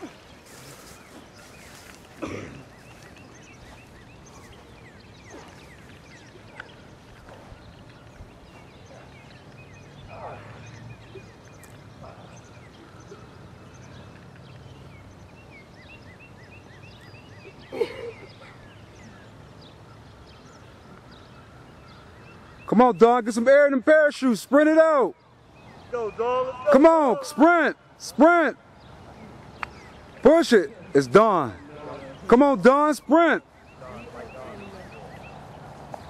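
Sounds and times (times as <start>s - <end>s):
low background noise: 0.0s - 36.0s
call or shout: 25.8s - 28.6s.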